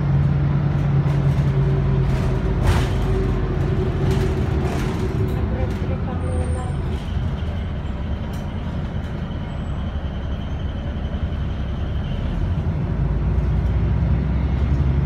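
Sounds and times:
bus engine and road rumble: 0.0 - 15.0.

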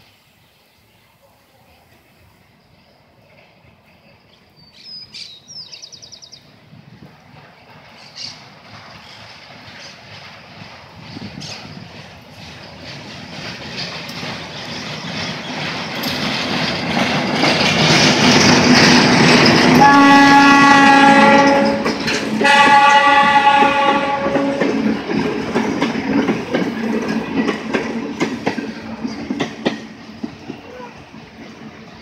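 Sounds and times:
diesel locomotive engine: 0.0 - 32.0
wheels clattering over rail joints: 7.3 - 32.0
locomotive horn blasts: 19.8 - 24.9.

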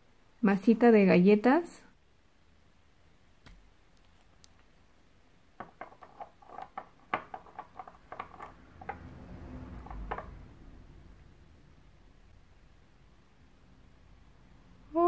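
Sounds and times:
cap unscrewing: 5.6 - 9.0.

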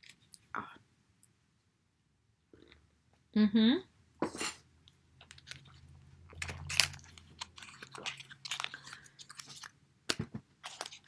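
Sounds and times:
packaging clicks and crinkles: 5.2 - 9.8.

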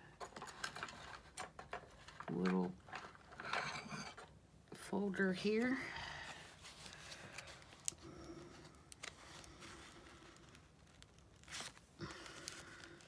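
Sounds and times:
paper rustling and scraping: 9.0 - 13.0.

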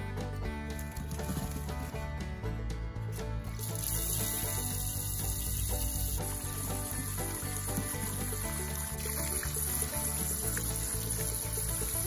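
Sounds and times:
instrumental background music: 0.0 - 12.0.

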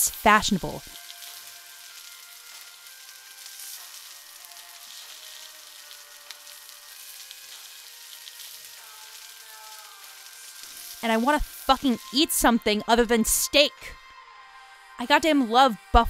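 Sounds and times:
steady hiss: 0.0 - 12.6
soft music of sustained notes: 0.0 - 16.0.

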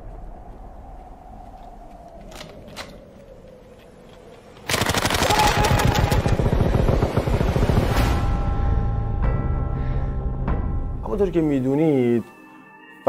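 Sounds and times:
submachine gun automatic fire: 4.7 - 8.0.

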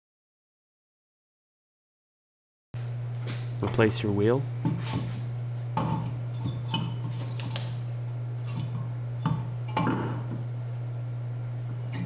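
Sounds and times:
steady low hum: 2.8 - 12.0.

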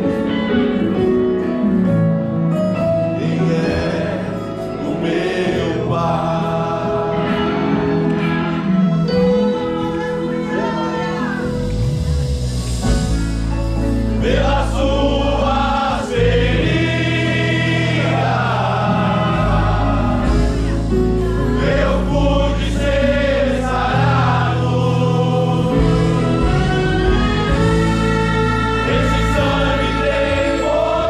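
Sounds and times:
choir singing: 2.8 - 9.9, 13.8 - 31.0.

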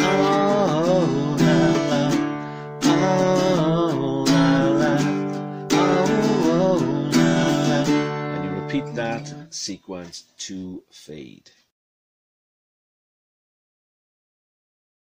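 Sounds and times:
acoustic guitar strumming chords: 0.0 - 10.2
person singing: 0.0 - 10.2.

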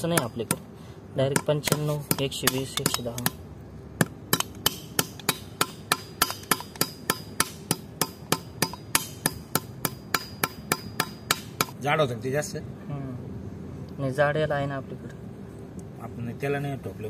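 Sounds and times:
hammer blows on metal: 4.0 - 11.8.

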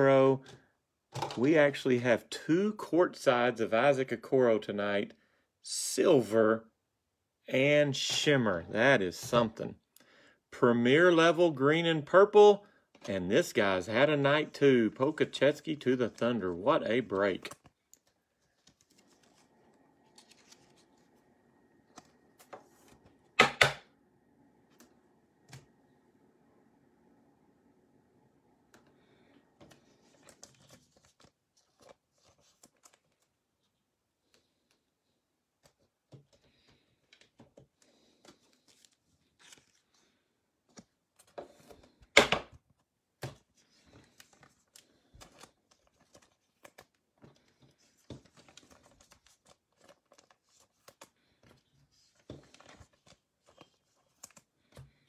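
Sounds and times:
trading cards shuffling: 12.9 - 23.8, 29.5 - 33.3, 35.6 - 42.0, 43.2 - 55.0.

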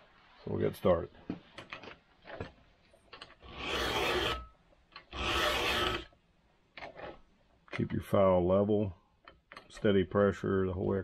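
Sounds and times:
file scraping saw chain: 3.2 - 6.2.

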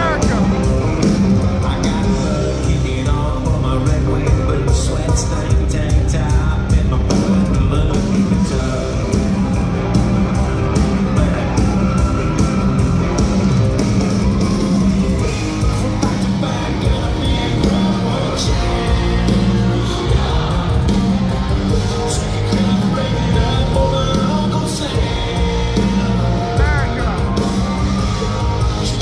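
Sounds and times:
electric guitars: 0.0 - 29.0
steady drum beat: 0.0 - 29.0
man singing into a microphone: 1.6 - 9.3, 15.2 - 21.0, 21.7 - 27.4.

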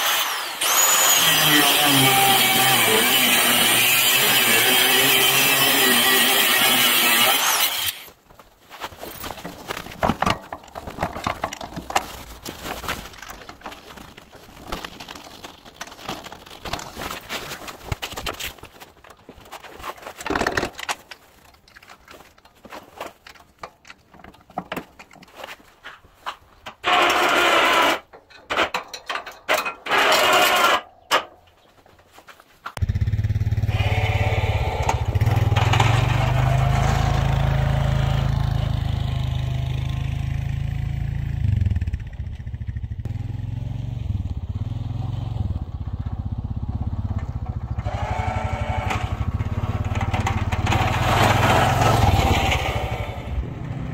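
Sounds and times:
atv engine running: 32.8 - 53.9.

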